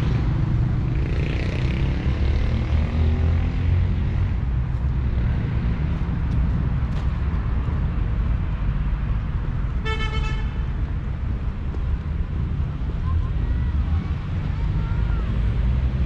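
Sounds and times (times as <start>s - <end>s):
low traffic rumble: 0.0s - 16.0s
vehicle horn toot: 9.8s - 10.6s.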